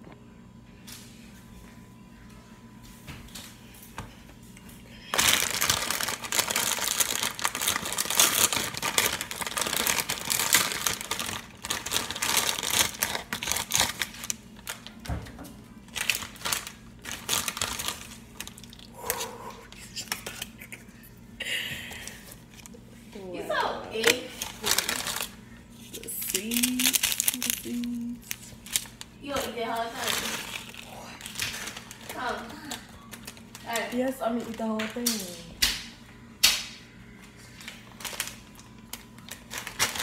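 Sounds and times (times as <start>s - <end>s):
plastic wrapper crinkling: 5.0s - 15.1s, 15.8s - 18.9s, 24.0s - 35.4s, 37.5s - 40.0s.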